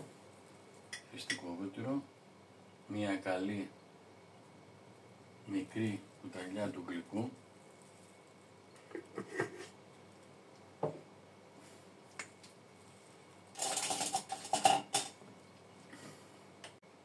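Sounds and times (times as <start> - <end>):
spoon clinking and scraping dishware: 13.6 - 15.2.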